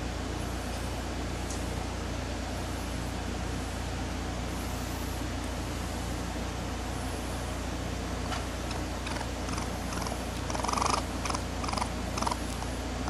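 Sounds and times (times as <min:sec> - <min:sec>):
steady low hum: 0:00.0 - 0:13.0
baby raccoon chittering: 0:08.5 - 0:12.8.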